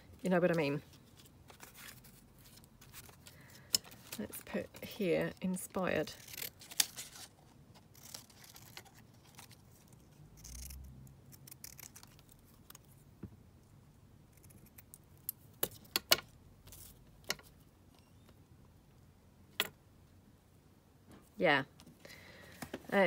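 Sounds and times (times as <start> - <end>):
scissors snipping paper: 6.0 - 12.8.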